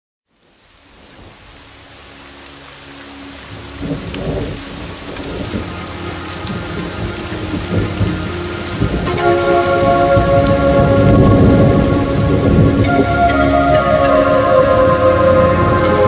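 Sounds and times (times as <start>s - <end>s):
steady rain: 0.3s - 16.0s
thunder rumbling: 3.4s - 16.0s.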